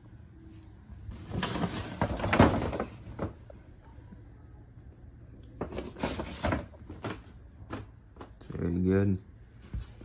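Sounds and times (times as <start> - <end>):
rustling and knocking: 1.1 - 3.6, 5.6 - 8.5.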